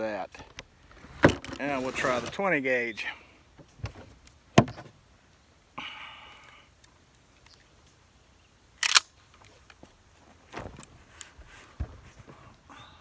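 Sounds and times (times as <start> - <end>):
shotgun handling clicks: 8.8 - 9.8.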